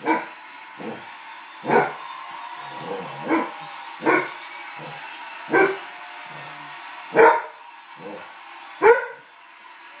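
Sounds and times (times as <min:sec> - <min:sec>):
dog barking: 0:03.2 - 0:04.3, 0:05.5 - 0:05.8, 0:07.1 - 0:07.5, 0:08.8 - 0:09.2.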